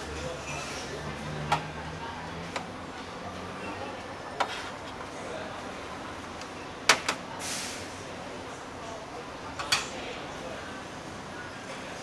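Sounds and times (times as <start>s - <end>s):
restaurant background hum: 0.0s - 12.0s
brief hiss: 7.4s - 7.9s.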